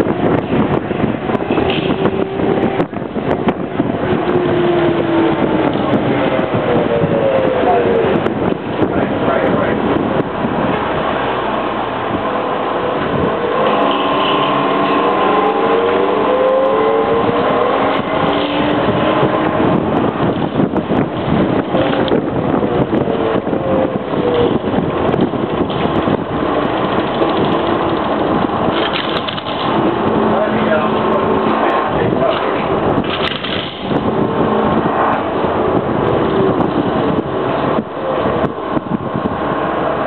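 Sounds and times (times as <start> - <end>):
whining tones rising in pitch: 0.0 - 28.9, 33.8 - 40.0
wind and running noise: 0.0 - 40.0
scattered clicks: 25.4 - 29.8, 32.3 - 34.0.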